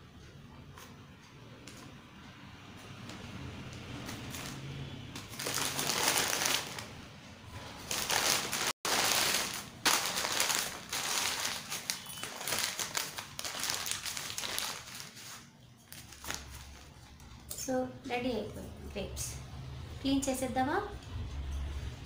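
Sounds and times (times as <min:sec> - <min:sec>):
plastic bag crinkling: 0:05.3 - 0:07.0, 0:07.6 - 0:17.2.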